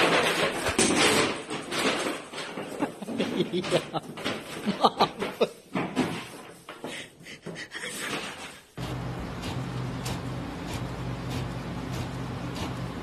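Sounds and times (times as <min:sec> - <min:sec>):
inkjet printer running: 0:08.8 - 0:13.0.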